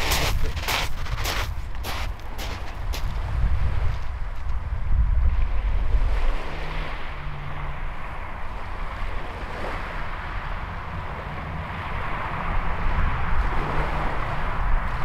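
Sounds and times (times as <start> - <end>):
small waves breaking on shingle: 0.0 - 3.2
breeze buffeting microphone: 0.0 - 6.2.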